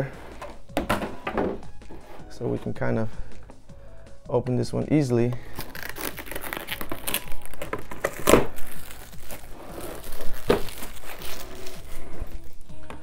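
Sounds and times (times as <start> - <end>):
plastic packaging crinkling: 5.4 - 12.7.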